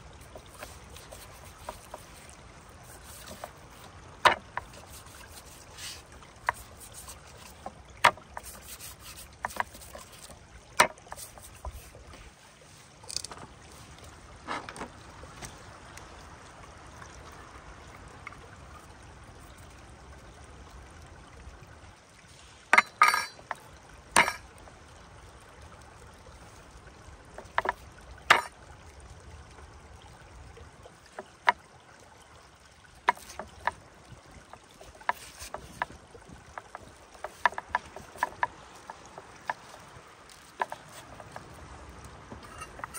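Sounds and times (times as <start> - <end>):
stream rushing: 0.0 - 42.9
taps and knocks on a wooden board: 4.2 - 11.9, 33.1 - 33.8.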